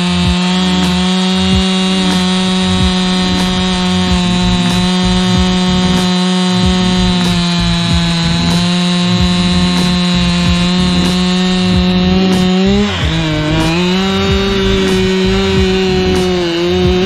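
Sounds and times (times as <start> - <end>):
chainsaw cutting log: 0.0 - 17.0.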